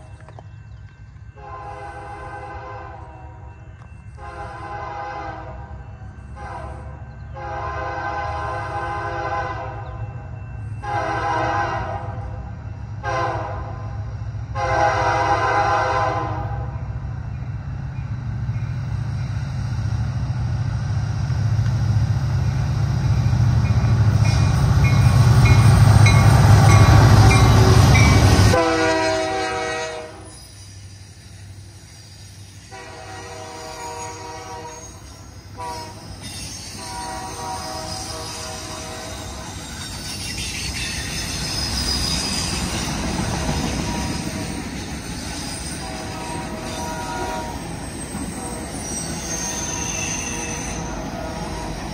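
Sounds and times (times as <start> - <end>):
rail cars rolling: 0.0 - 51.9
locomotive horn blowing: 1.4 - 3.4, 4.2 - 5.8, 6.4 - 10.0, 10.8 - 16.8, 25.5 - 30.4, 32.7 - 36.1, 36.8 - 39.6, 45.8 - 47.7, 49.5 - 51.9
locomotive engine rumble: 14.8 - 30.2
ringing wheel squeals: 30.2 - 32.7, 36.1 - 42.9, 43.5 - 45.9, 47.6 - 51.9.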